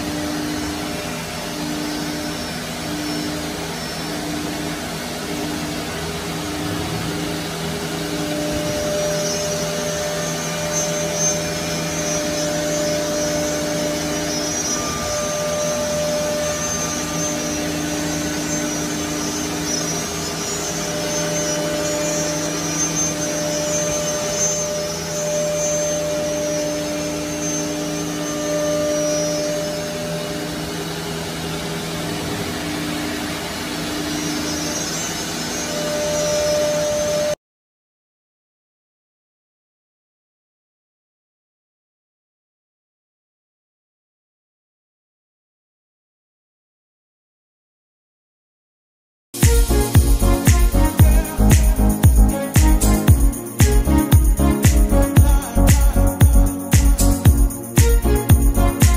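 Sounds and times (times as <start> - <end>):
cnc router whine: 0.0 - 37.4, 49.4 - 58.9
pitched spindle tones: 49.4 - 58.9.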